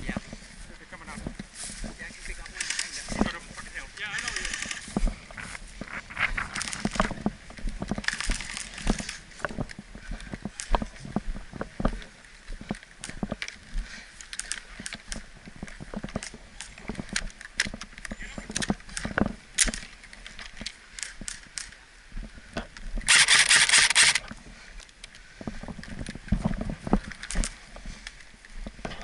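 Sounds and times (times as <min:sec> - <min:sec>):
airsoft gun full-auto burst: 0:23.1 - 0:24.2.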